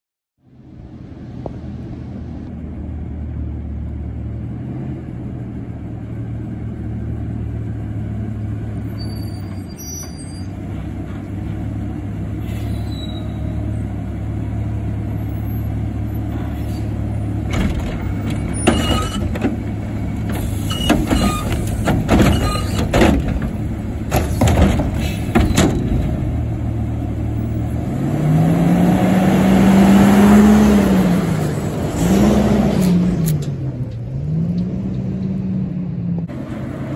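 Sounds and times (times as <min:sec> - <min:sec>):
garbage truck engine: 0:01.9 - 0:36.9
air brake hisses: 0:12.4 - 0:13.3
engine revving: 0:27.4 - 0:36.9.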